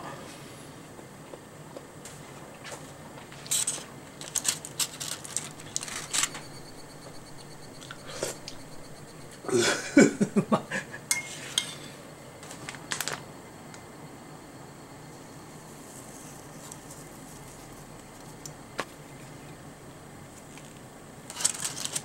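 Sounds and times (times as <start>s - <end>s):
aluminium foil crinkling: 3.4s - 6.6s, 12.4s - 13.3s, 20.4s - 22.0s.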